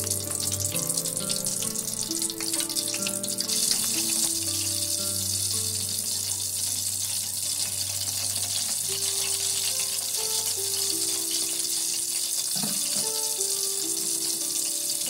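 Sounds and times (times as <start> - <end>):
hot oil sizzling: 0.0 - 15.0
soft background music: 0.0 - 15.0.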